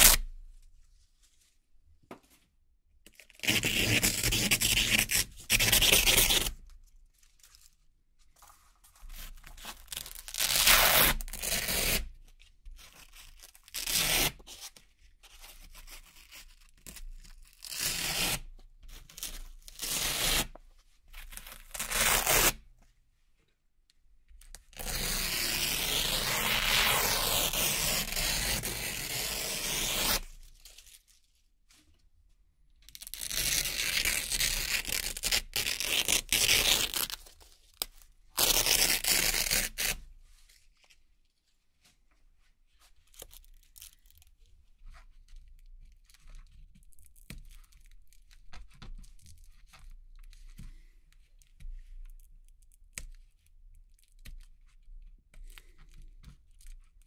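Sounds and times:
velcro ripping apart: 0.0 - 0.2, 9.7 - 12.0, 21.4 - 22.6, 24.8 - 30.3, 33.0 - 37.3, 38.3 - 40.0.

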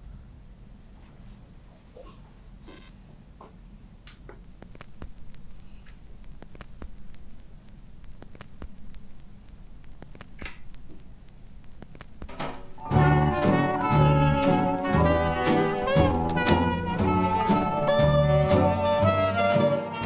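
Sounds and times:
low steady hum: 0.0 - 19.2
vinyl record clicks and pops: 4.0 - 18.9.

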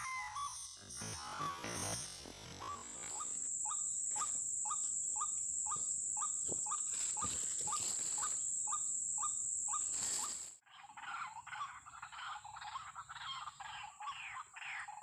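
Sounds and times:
high insect drone: 0.0 - 10.6.

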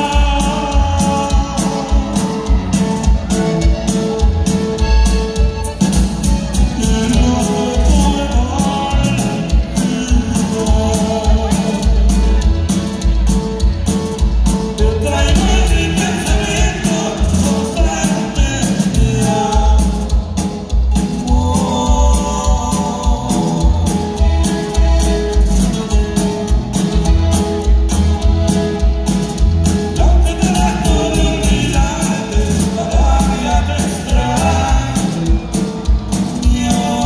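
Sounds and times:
bass: 0.0 - 37.0
button accordion melody: 0.0 - 37.0
drums keeping a beat: 0.0 - 37.0
guitar: 0.0 - 37.0.

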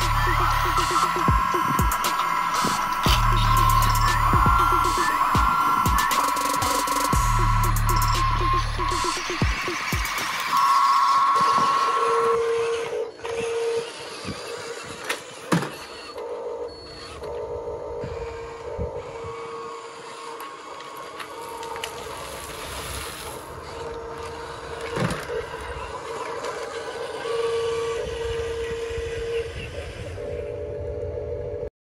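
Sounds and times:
electronic tone switching on and off: 0.0 - 14.0
toy truck electric drive: 0.0 - 30.8.

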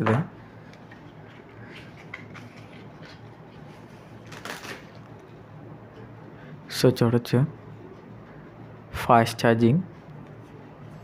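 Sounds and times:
low room noise: 0.0 - 11.0
plastic rustle: 1.6 - 5.0.

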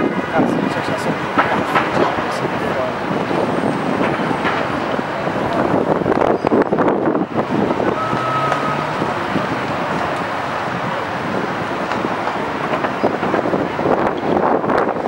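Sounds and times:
cars passing and turning: 0.0 - 15.0
wind buffeting microphone: 0.0 - 15.0
short steady tone: 7.9 - 9.2.

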